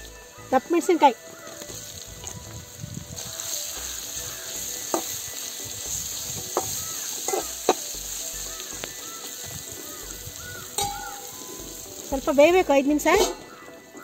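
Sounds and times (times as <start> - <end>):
vegetables sizzling in hot oil: 0.0 - 14.0
metal spatula scraping pan: 6.5 - 7.8, 10.7 - 11.8, 13.0 - 13.6.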